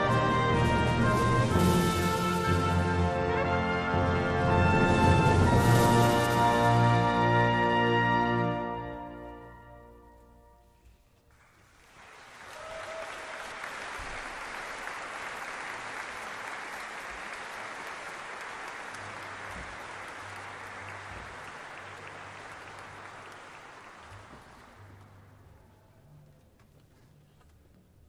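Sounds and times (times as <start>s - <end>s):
audience applauding: 11.3s - 25.5s.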